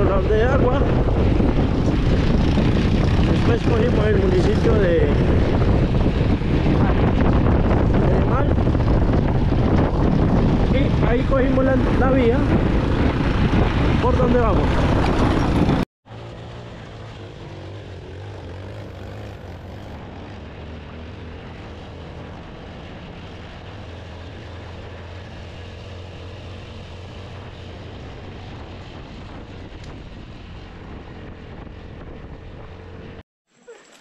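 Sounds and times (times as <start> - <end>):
tyre and wind noise: 0.0 - 15.8, 18.2 - 34.0
motorcycle engine running: 0.2 - 22.5.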